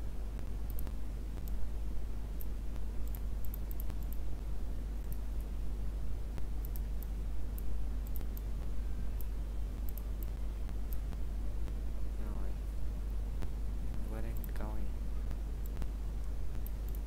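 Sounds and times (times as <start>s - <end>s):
low electrical hum: 0.0s - 17.0s
computer mouse clicking: 0.7s - 1.6s, 2.4s - 4.2s, 5.0s - 5.5s, 6.4s - 8.5s, 9.2s - 11.8s, 14.3s - 14.6s, 15.6s - 17.0s.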